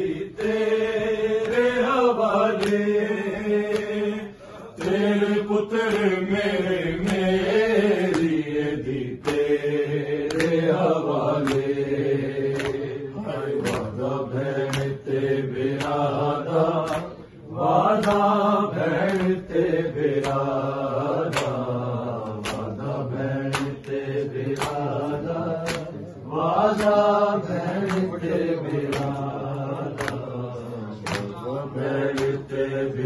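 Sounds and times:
men chanting in unison: 0.0 - 33.0
rhythmic chest beating: 0.0 - 33.0.

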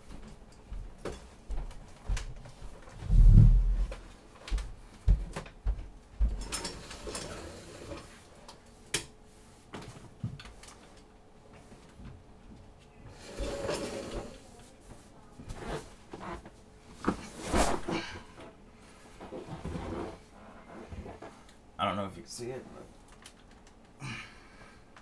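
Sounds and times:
heavy low thump: 3.0 - 4.0
knocks and bumps: 3.0 - 4.0.

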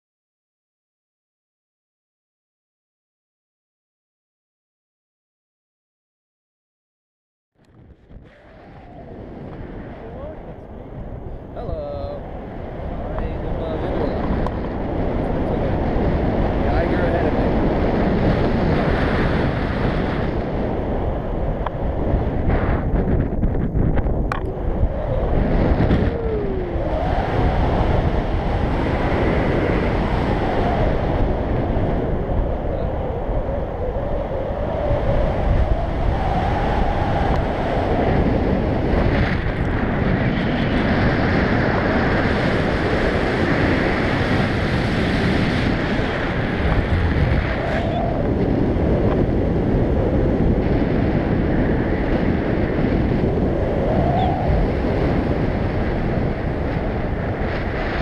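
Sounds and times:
wind rushing over microphone: 7.6 - 58.0.

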